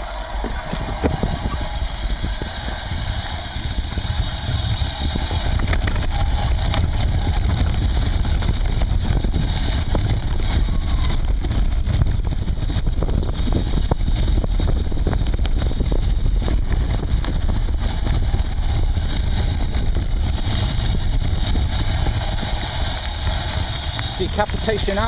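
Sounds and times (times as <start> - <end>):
bike tyres rumbling on dirt: 0.0 - 25.0
bike knocks and rattles: 0.4 - 25.0.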